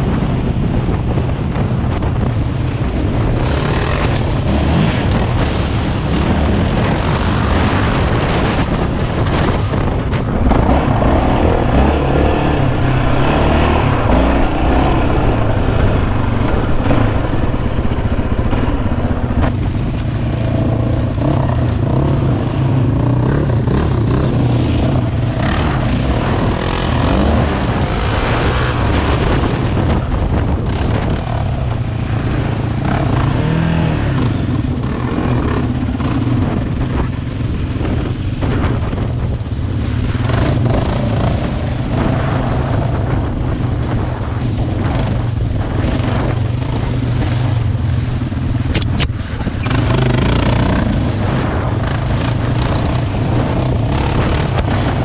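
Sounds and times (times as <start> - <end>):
atv engine running: 10.3 - 19.5, 33.2 - 55.0
knocks and rattles from ride: 10.4 - 19.5.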